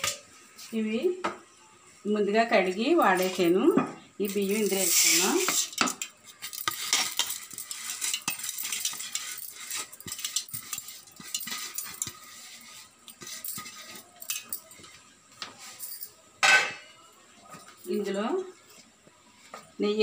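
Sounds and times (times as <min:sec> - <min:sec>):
steel kitchenware clinking: 0:04.3 - 0:16.9.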